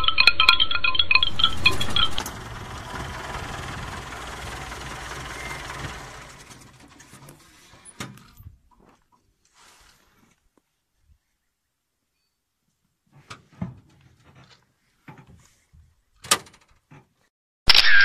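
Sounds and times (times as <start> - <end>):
vehicle engine idling: 1.2 - 8.0.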